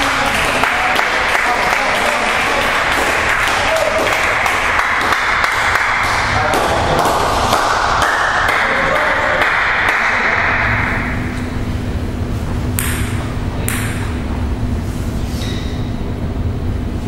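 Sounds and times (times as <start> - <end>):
table tennis ball bouncing: 12.7 - 14.3.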